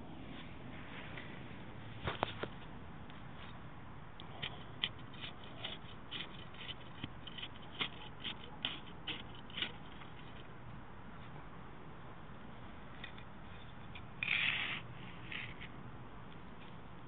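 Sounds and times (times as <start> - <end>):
soil being worked by hand: 4.2 - 10.6.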